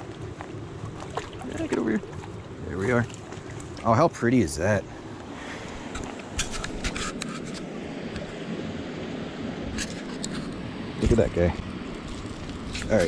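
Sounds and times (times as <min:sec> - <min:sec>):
flowing creek water: 0:00.0 - 0:13.0
landing net scraping and splashing: 0:05.4 - 0:07.8, 0:11.8 - 0:13.0.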